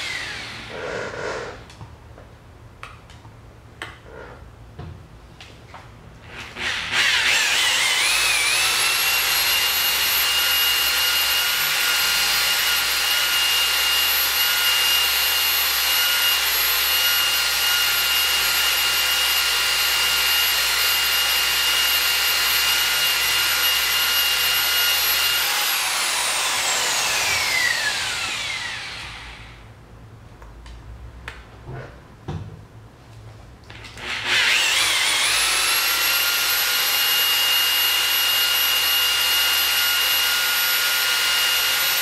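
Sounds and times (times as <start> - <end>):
rotary polisher whining: 0.0 - 1.7, 6.3 - 29.6, 34.0 - 42.0.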